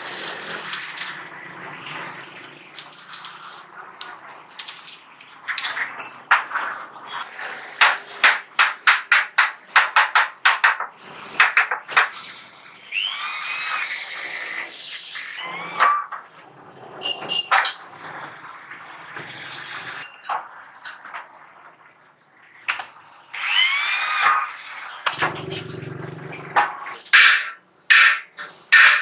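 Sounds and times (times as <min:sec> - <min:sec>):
hammer striking sheet metal: 0:07.8 - 0:12.1, 0:27.0 - 0:29.0
electric drill running: 0:12.8 - 0:15.4, 0:23.4 - 0:25.0.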